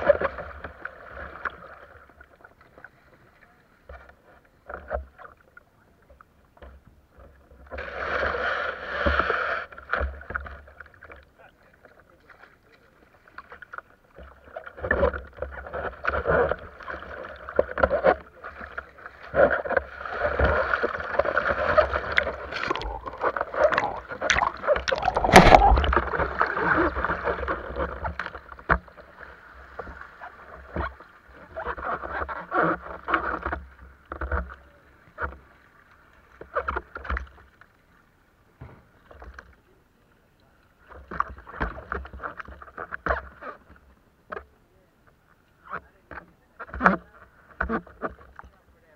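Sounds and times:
knocks and scrapes against hull: 0.0 - 5.5, 6.1 - 35.6, 36.3 - 37.6, 38.6 - 39.6, 40.8 - 44.5, 45.1 - 48.7
water sloshing and splashing: 0.0 - 39.8, 40.5 - 44.5
rumbling on camera: 17.5 - 28.4.

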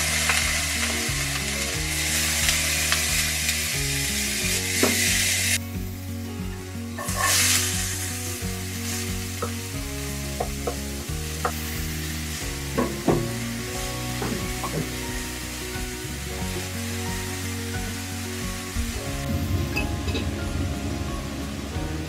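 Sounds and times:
onion sizzling in hot oil: 0.0 - 22.0
wooden spatula scraping a wok: 6.9 - 8.2.

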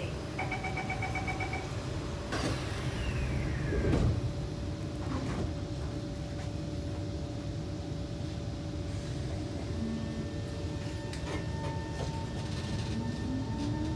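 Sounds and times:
train equipment hum: 0.0 - 13.9
train doors sliding shut: 2.1 - 4.4.

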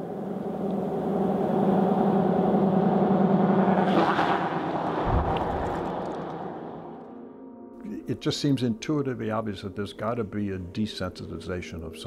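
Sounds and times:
car passing on road: 1.5 - 7.1
short low thump: 5.0 - 6.1.

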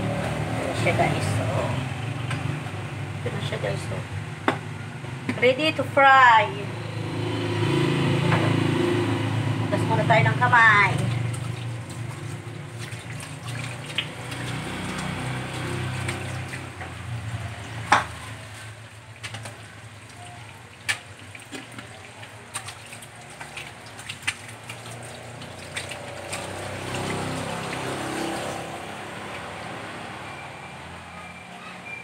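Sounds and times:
running water: 9.8 - 30.0
hands washing with splashing: 10.8 - 29.6.

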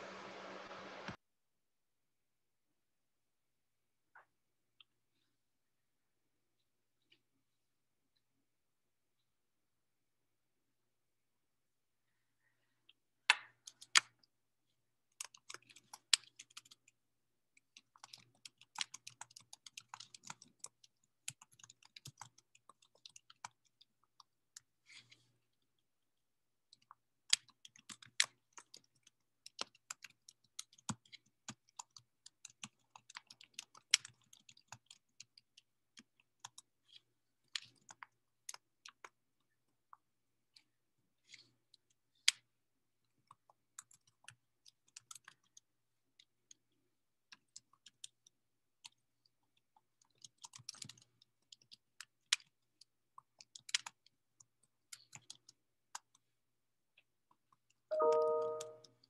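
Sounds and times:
keyboard keystroke clicks: 57.9 - 58.9.

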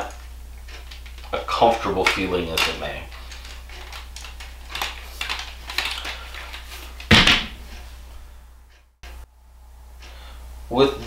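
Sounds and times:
tripod clicks and rattles: 0.7 - 7.8
loud tripod clack: 7.0 - 7.7.

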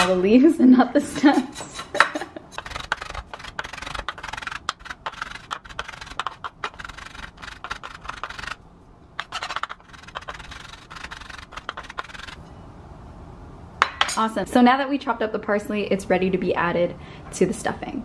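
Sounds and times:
knife chopping on wooden board: 2.5 - 8.6.

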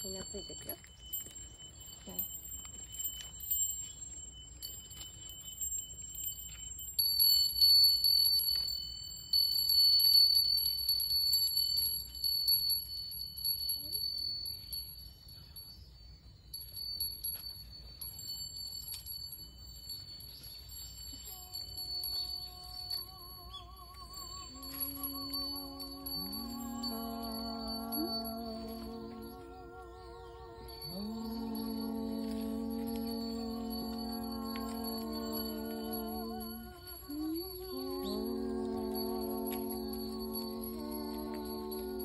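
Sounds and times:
small metal chimes ringing: 0.0 - 42.0
low held note with vibrato: 21.4 - 42.0.

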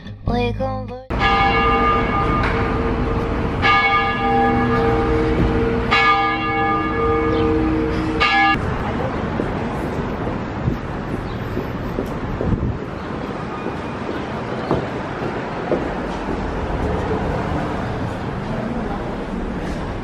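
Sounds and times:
church bell tolling: 1.1 - 8.7
street noise: 1.1 - 20.0.

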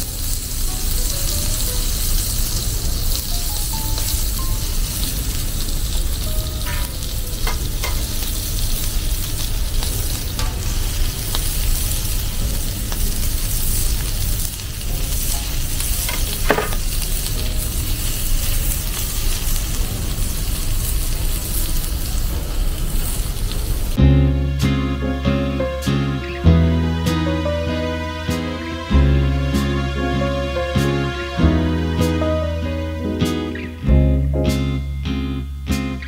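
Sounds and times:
food sizzling on a griddle: 0.0 - 24.0
steel tongs clinking on plate: 16.0 - 16.9.

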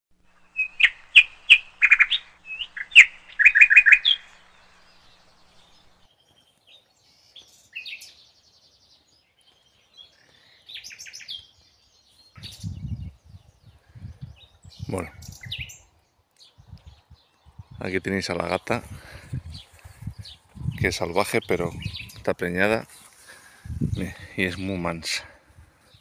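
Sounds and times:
songbirds chirping: 0.2 - 26.0
low rumble: 12.4 - 15.6.

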